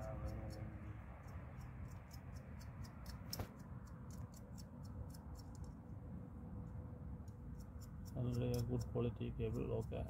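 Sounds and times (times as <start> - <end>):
high-pitched ticking: 0.0 - 5.6
sharp click: 1.2 - 5.8.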